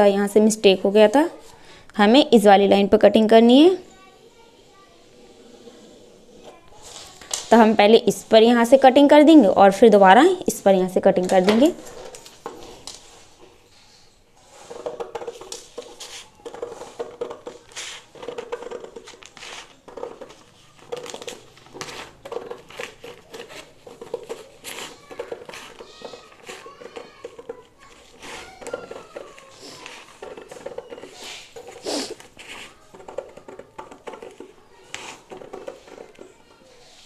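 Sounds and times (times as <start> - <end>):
paper rustling: 14.4 - 37.0
scissors snipping paper: 20.7 - 35.5.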